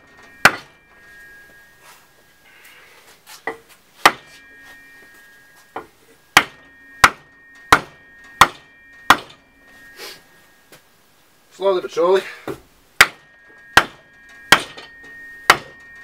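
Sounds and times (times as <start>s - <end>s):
steel shaft ringing: 0.0s - 16.0s
hammer blows on wooden block: 5.7s - 9.4s, 12.4s - 16.0s.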